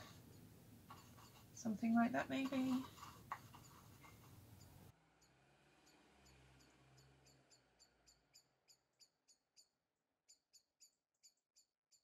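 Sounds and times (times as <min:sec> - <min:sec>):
faint high chirps: 0:04.6 - 0:11.7.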